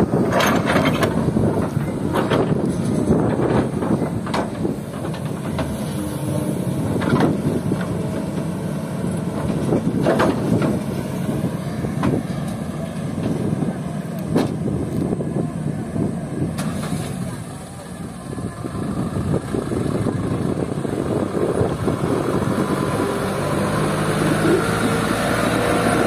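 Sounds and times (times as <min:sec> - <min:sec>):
excavator diesel engine under load: 0:00.0 - 0:26.0.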